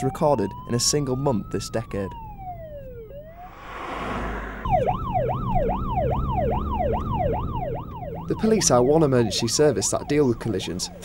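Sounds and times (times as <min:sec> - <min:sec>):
police siren yelp: 0:00.0 - 0:03.5, 0:04.6 - 0:11.0
police siren wail: 0:00.0 - 0:03.6, 0:04.3 - 0:11.0
rushing whoosh: 0:03.4 - 0:05.2.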